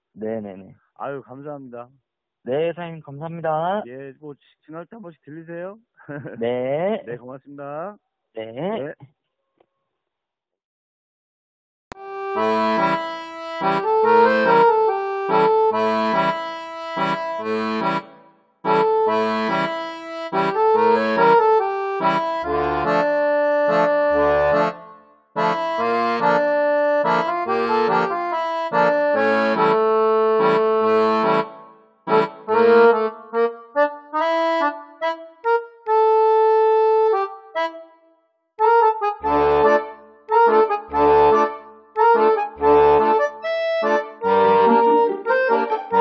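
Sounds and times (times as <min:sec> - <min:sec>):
instrumental music: 0:11.9 - 0:46.0.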